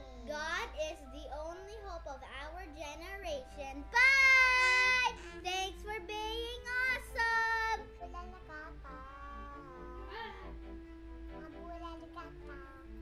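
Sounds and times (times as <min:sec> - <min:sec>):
girl singing: 0:00.0 - 0:10.3, 0:11.4 - 0:13.0.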